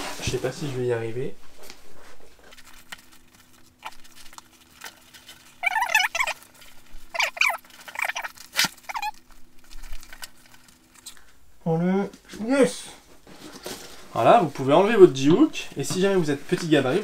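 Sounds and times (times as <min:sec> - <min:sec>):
nylon webbing squeaking: 0:03.7 - 0:09.4.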